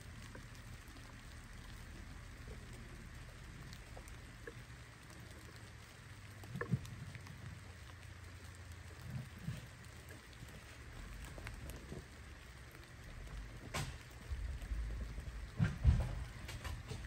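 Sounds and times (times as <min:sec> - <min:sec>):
light ticks and patter: 0:00.0 - 0:17.0
thumps: 0:15.4 - 0:17.0.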